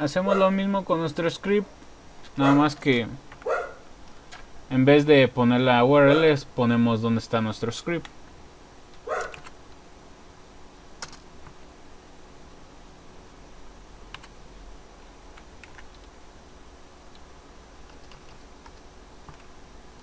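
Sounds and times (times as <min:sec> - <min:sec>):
faint steady hiss: 0:00.0 - 0:20.0
computer keyboard keys clicking: 0:09.2 - 0:09.6, 0:11.0 - 0:11.6, 0:14.1 - 0:14.4, 0:15.3 - 0:16.2, 0:17.1 - 0:20.0.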